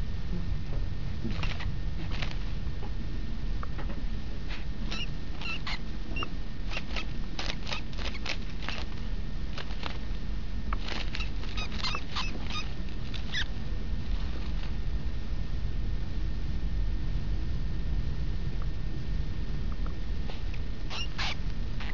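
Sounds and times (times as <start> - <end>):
low rumble: 0.0 - 21.8
mouse squeaking: 1.3 - 2.4, 4.5 - 10.1, 10.7 - 13.5, 19.7 - 21.9
sharp rustling clicks: 1.3 - 2.5, 4.9 - 10.2, 10.8 - 13.5.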